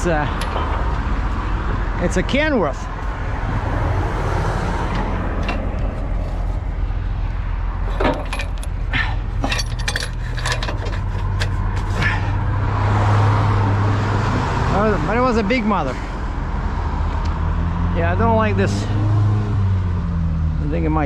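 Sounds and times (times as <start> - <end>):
metallic clinking and rattling: 7.8 - 12.2.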